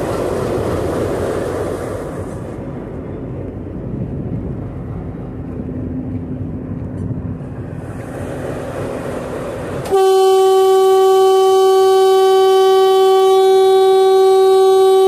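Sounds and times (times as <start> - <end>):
diesel locomotive engine rumbling: 0.0 - 15.0
locomotive horn blast: 9.8 - 15.0.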